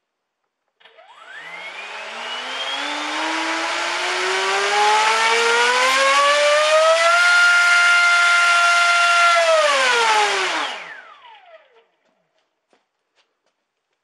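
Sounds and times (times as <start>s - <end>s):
electric motor propeller whine: 0.8s - 11.9s.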